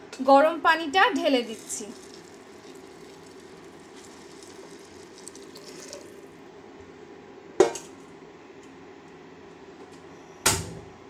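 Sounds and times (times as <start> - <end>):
water pouring into a pot: 1.3 - 6.4.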